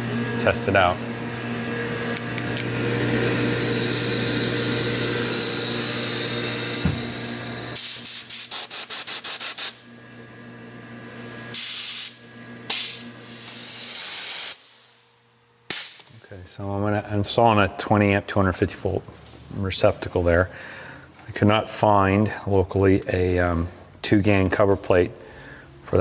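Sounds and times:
air blow gun hissing: 5.0 - 9.8, 11.5 - 15.0.

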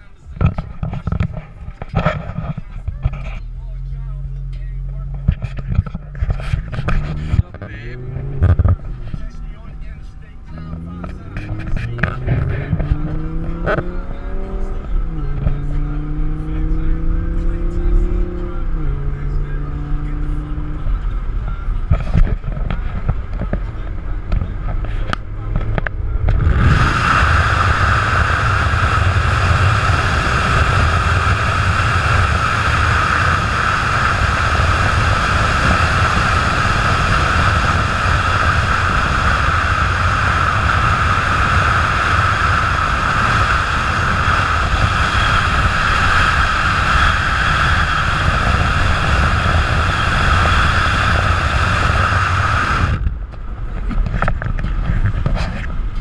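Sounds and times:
low road rumble: 0.0 - 56.0
wind rushing over camera: 21.3 - 56.0.

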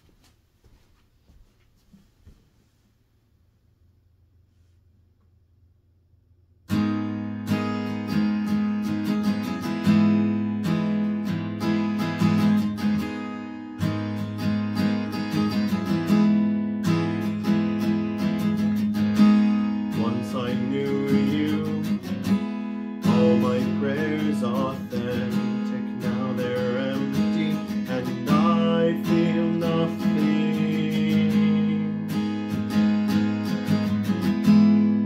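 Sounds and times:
acoustic guitar strumming: 6.7 - 35.0
man singing: 19.9 - 22.4, 23.0 - 32.3.

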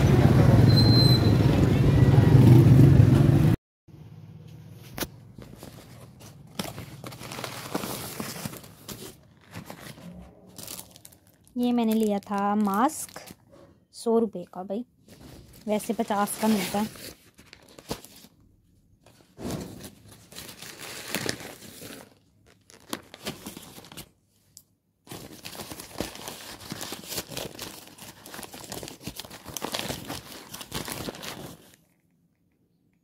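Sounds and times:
plastic packaging rustling: 5.2 - 13.4, 15.0 - 18.5, 19.1 - 24.2, 25.0 - 32.0
paper bags crinkling: 5.3 - 13.4, 15.4 - 18.4, 19.1 - 24.2, 25.0 - 31.9.

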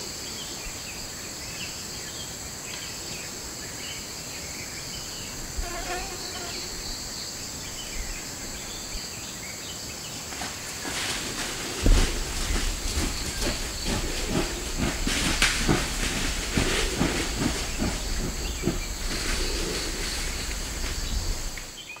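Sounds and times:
high insect drone: 0.0 - 22.0
rustling and crackling undergrowth: 5.1 - 22.0
low rumble: 11.8 - 21.8.

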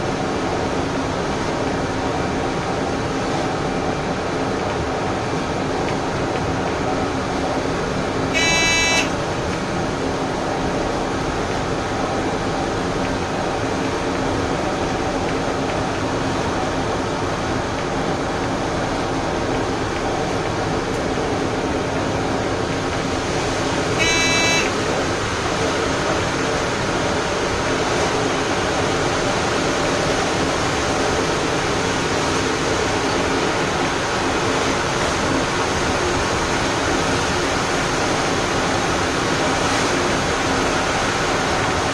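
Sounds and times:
trains rumbling on rails: 0.0 - 41.9
short buzzing beep: 8.4 - 9.1, 24.0 - 24.7.

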